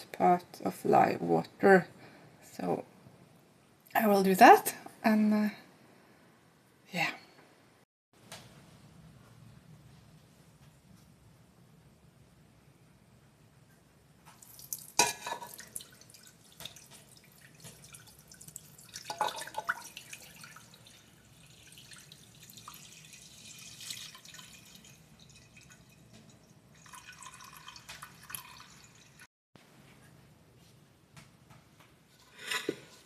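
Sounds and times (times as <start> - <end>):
liquid trickling into metal pot: 14.4 - 29.3.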